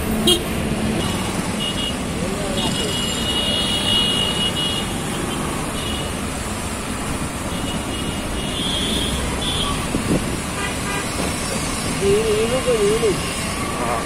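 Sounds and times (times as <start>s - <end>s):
engines and road noise rumble: 0.0s - 14.0s
vehicle horns honking: 0.2s - 6.2s, 7.5s - 9.9s, 10.5s - 11.2s.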